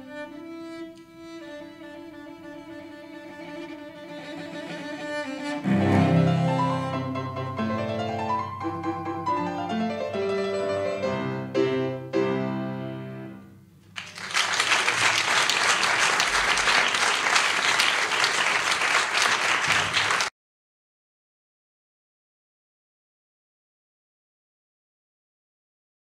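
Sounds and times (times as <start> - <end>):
piano playing chords: 5.6 - 13.7
audience applause: 13.9 - 20.3.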